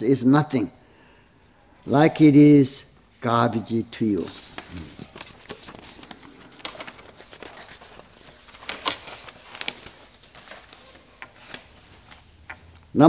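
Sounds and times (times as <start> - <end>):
paper sheets rustling: 3.9 - 13.0.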